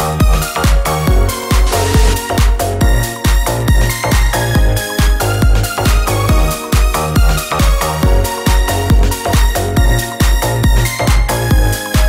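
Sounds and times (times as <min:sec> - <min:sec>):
electronic dance music: 0:01.3 - 0:02.7
fast kick drum: 0:01.5 - 0:03.4.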